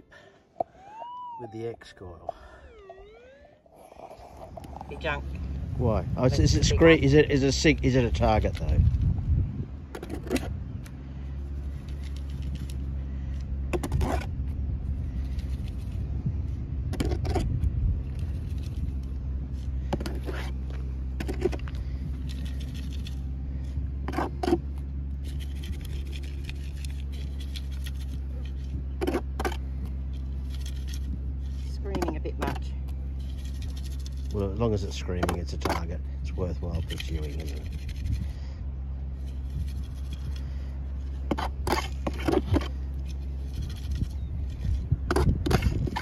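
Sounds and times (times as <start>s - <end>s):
steady low hum: 0.0s - 46.0s
digging into stony ground: 9.9s - 11.0s, 11.6s - 16.0s, 16.8s - 38.4s, 39.1s - 46.0s.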